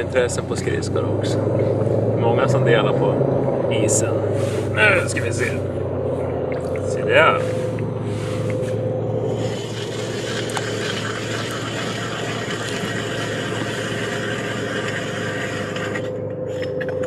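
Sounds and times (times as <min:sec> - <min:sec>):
constant low hum: 0:00.0 - 0:17.0
steady rushing noise: 0:01.4 - 0:10.8.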